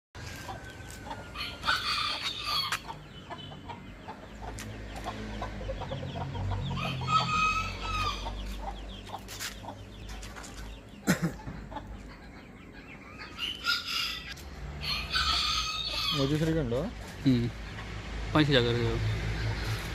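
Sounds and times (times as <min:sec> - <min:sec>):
chickens clucking: 0:00.2 - 0:18.3
rooster crowing: 0:01.3 - 0:02.8, 0:06.7 - 0:08.3, 0:13.6 - 0:16.4.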